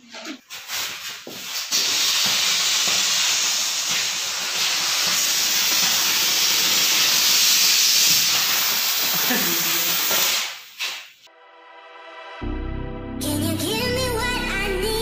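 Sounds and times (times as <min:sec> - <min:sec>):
firework rocket hissing: 0:00.6 - 0:11.3.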